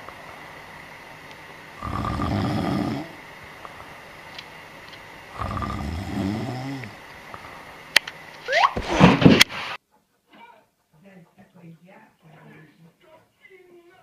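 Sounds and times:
cat snoring: 1.8s - 3.2s, 5.3s - 7.0s.

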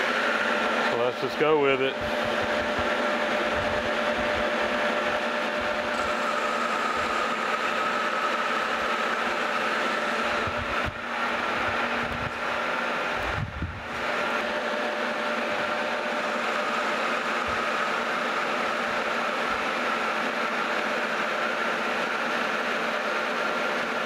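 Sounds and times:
metal lathe cutting metal bar: 0.0s - 24.0s.

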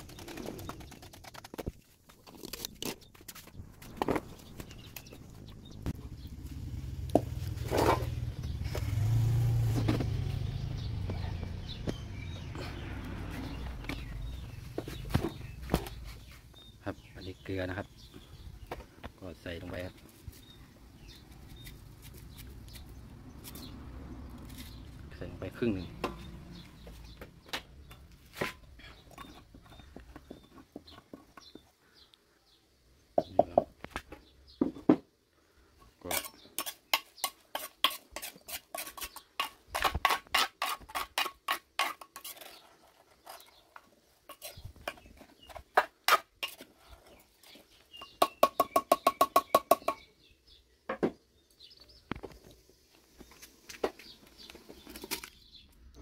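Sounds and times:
vehicle engine passing: 6.1s - 14.8s, 22.9s - 27.2s.

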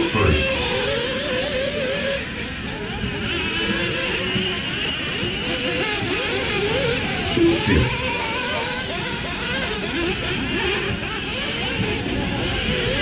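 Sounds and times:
model car motors whining: 0.0s - 13.0s.

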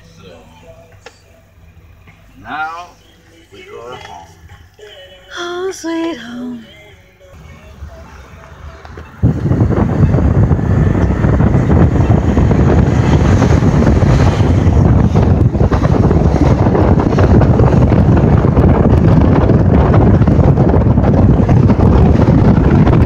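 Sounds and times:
wind buffeting microphone: 8.8s - 23.0s.

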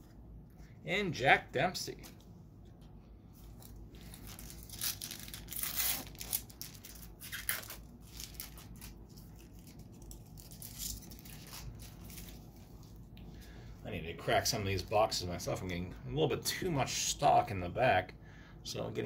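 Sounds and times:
card pack wrapper tearing: 4.0s - 12.4s.

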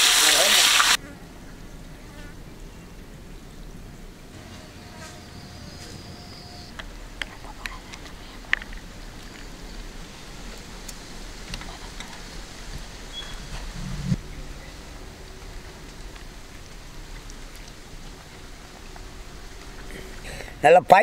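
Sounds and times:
flying insects buzzing: 4.3s - 20.4s.

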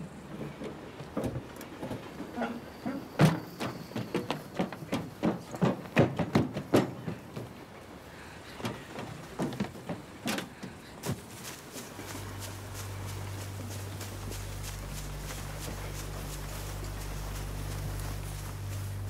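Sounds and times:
low steady hum: 7.0s - 19.0s.

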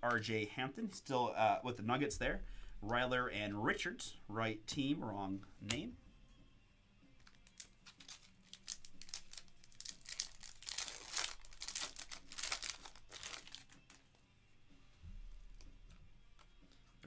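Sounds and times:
plastic wrapper tearing and crinkling: 7.2s - 14.2s.

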